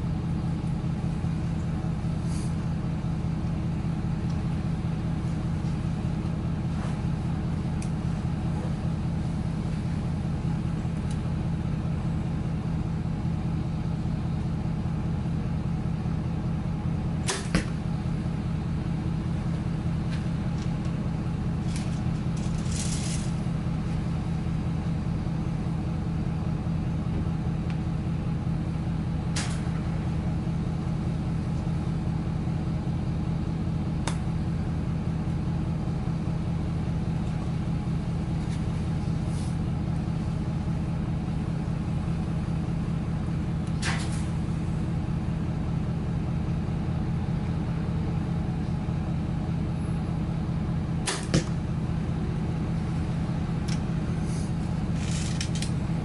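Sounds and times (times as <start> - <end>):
steady low hum: 0.0 - 56.0
arrow handling clicks and rustles: 21.6 - 23.5, 29.3 - 29.7, 43.7 - 44.3, 53.6 - 55.8
bow string snap: 29.3 - 29.7, 34.0 - 34.3, 51.0 - 51.6.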